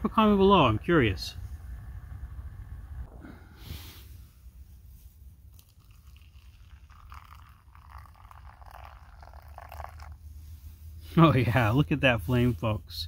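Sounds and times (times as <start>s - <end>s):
water trickling into a bowl: 5.4s - 10.3s.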